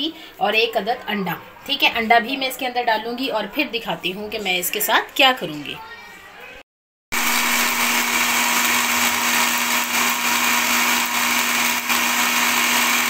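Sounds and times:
mixer grinder motor whirring: 0:07.2 - 0:13.0.

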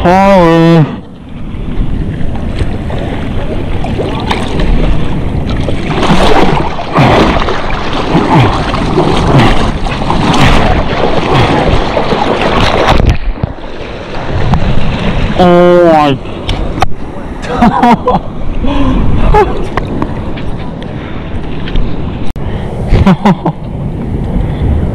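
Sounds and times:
water sloshing and splashing: 0:01.0 - 0:17.9
hands paddling through water: 0:02.3 - 0:15.2.

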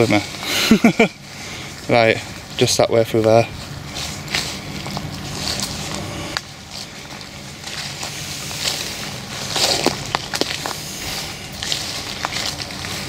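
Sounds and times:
footsteps through undergrowth: 0:00.0 - 0:13.0
leaves and brush rustling: 0:00.0 - 0:13.0
twigs cracking: 0:03.4 - 0:13.0.

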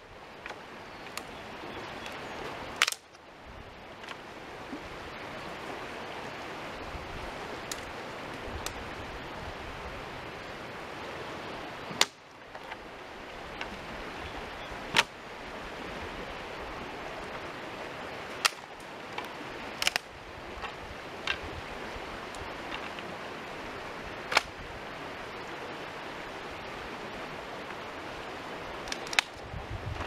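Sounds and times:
creek rushing: 0:00.0 - 0:30.0
dry branches cracking: 0:02.7 - 0:03.2, 0:11.9 - 0:12.8, 0:14.9 - 0:15.2, 0:18.3 - 0:21.4, 0:24.3 - 0:24.5, 0:28.8 - 0:29.4.

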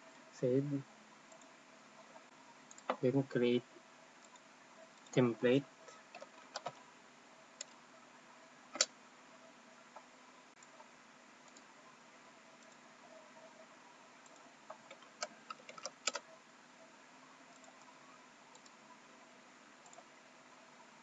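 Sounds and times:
faint room hiss: 0:00.0 - 0:21.0
keyboard and mouse clicks: 0:02.7 - 0:03.0, 0:06.0 - 0:06.8, 0:08.7 - 0:08.9, 0:09.9 - 0:11.7, 0:14.2 - 0:16.3, 0:17.5 - 0:17.9, 0:18.5 - 0:18.8, 0:19.8 - 0:20.1.

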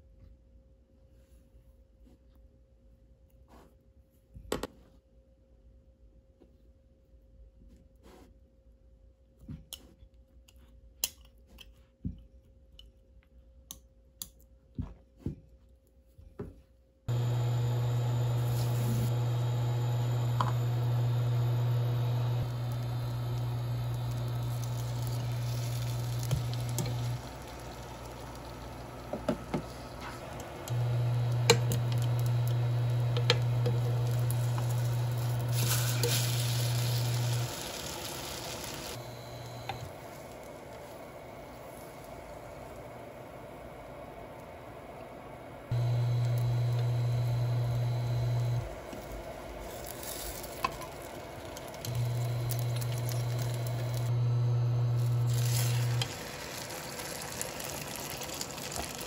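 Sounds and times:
bread sizzling in a pan: 0:17.1 - 0:41.0, 0:45.7 - 0:59.0.

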